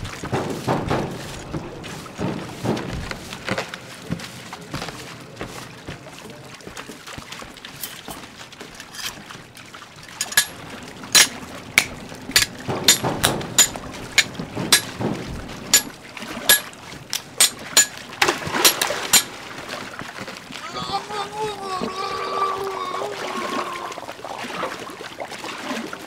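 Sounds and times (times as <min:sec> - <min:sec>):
steady background noise: 0:07.7 - 0:09.2, 0:10.0 - 0:20.2
swords clashing: 0:10.2 - 0:10.6, 0:11.2 - 0:15.0, 0:15.7 - 0:15.9, 0:16.5 - 0:18.0, 0:18.6 - 0:19.3.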